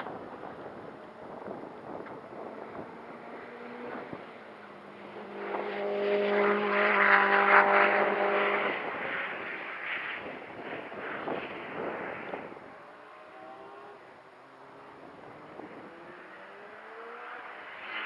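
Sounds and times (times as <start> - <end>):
wind on microphone: 0.0 - 12.9, 15.0 - 16.2
race car engine passing: 0.4 - 18.0.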